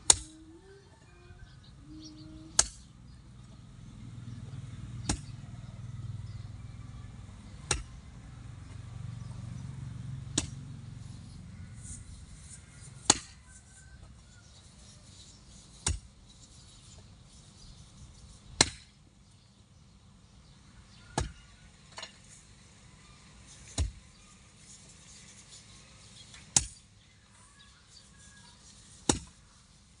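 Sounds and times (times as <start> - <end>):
hoe chopping into soil: 2.6 - 2.9, 5.0 - 5.4, 7.6 - 8.0, 10.3 - 10.6, 13.0 - 13.4, 15.7 - 16.2, 18.6 - 19.0, 21.2 - 21.4, 23.6 - 24.1, 26.3 - 26.8, 28.9 - 29.4.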